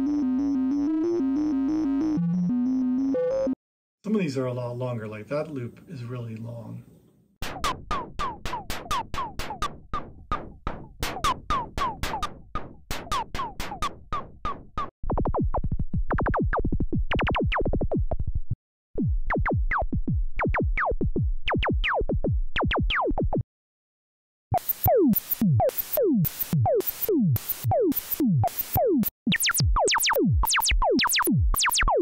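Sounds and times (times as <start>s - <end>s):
synthesizer blips falling in pitch: 0.0s - 3.6s, 24.6s - 32.0s
synthesizer zaps: 24.6s - 32.0s.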